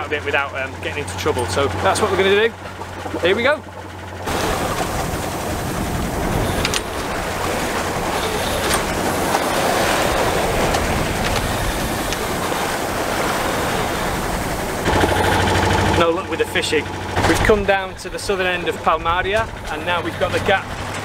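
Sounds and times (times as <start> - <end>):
choppy seawater splashing along hull: 0.0 - 21.0
low steady hum: 0.0 - 21.0
wind on microphone: 4.3 - 14.9.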